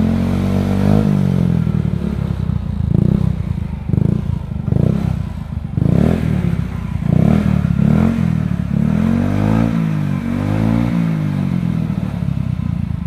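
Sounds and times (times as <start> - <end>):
scooter engine revving: 0.0 - 13.0.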